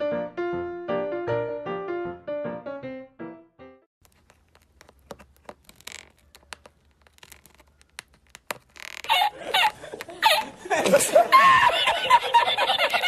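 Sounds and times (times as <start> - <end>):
piano tune: 0.0 - 3.9.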